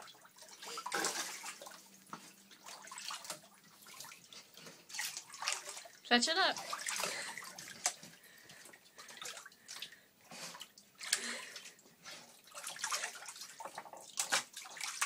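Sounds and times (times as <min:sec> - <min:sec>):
dog splashing in bathtub: 0:00.0 - 0:15.0
water dripping: 0:00.0 - 0:15.0.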